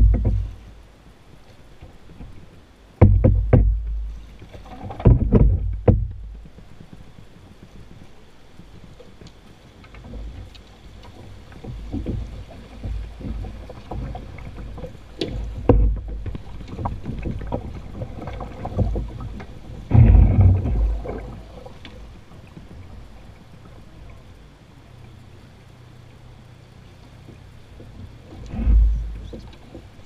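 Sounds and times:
low thumps: 0.0s - 0.6s, 3.0s - 4.2s, 4.8s - 6.6s, 15.4s - 16.4s, 19.9s - 21.4s, 28.4s - 29.6s
pole and hull clicking and knocking: 0.0s - 0.7s, 1.8s - 23.9s, 27.0s - 30.0s.

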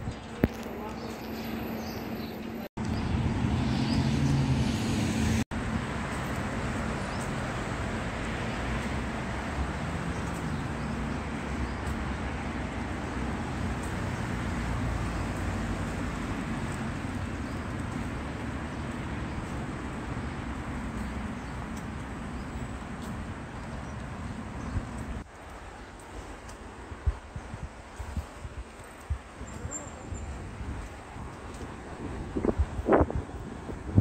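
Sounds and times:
passing road traffic: 0.0s - 34.0s
wind on microphone: 26.8s - 34.0s.

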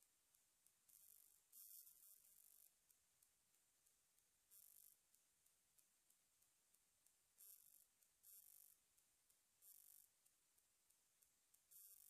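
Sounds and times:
faint ticks: 0.0s - 12.0s.

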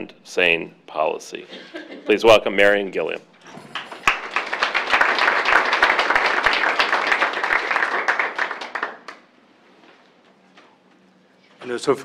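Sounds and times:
audience applauding: 3.6s - 9.3s.

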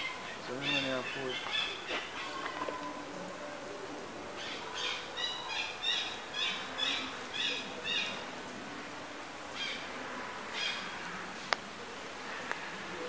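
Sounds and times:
high chirping animal calls: 0.0s - 3.0s, 4.4s - 8.2s.

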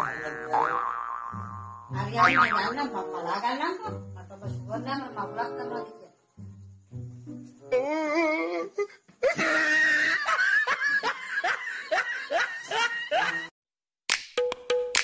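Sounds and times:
person laughing hard: 9.2s - 13.5s
music with sharp regular beat: 14.1s - 15.0s.

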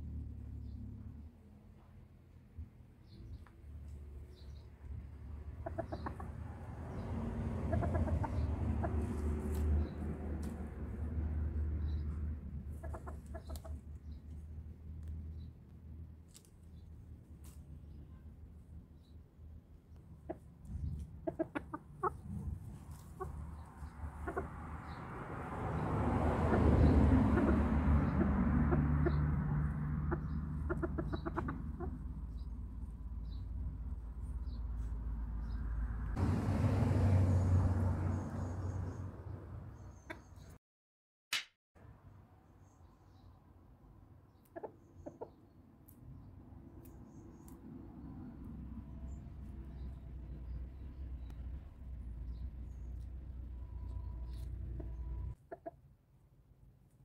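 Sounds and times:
rooster clucking: 5.5s - 9.6s, 12.7s - 13.9s, 20.2s - 25.0s, 26.4s - 32.5s, 44.5s - 45.4s, 54.2s - 55.8s.

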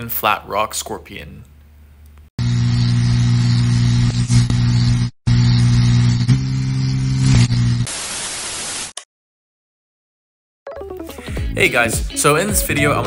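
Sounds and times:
low electric buzz: 2.4s - 7.9s
static hiss: 2.4s - 9.0s.

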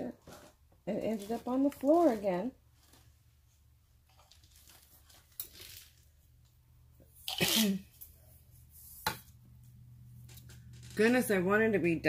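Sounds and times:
woman sneezing: 7.3s - 8.0s.

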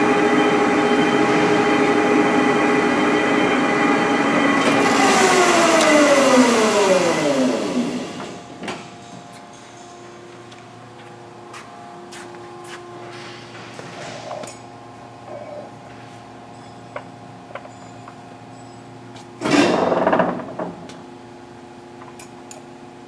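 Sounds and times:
lathe gear whine: 0.0s - 8.7s.

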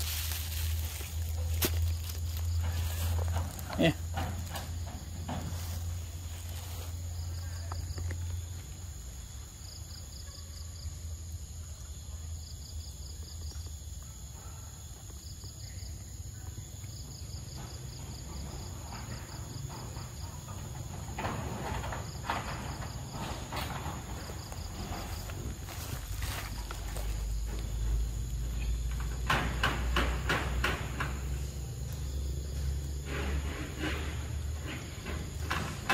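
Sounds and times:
rustling: 0.0s - 8.4s, 21.4s - 29.1s.

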